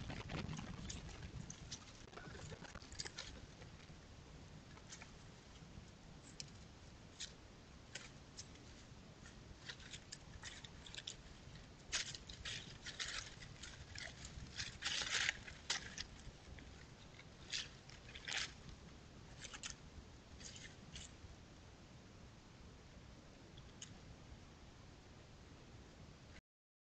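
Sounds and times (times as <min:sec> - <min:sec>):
animals rustling in dry leaves: 0:00.0 - 0:03.8, 0:08.5 - 0:18.7.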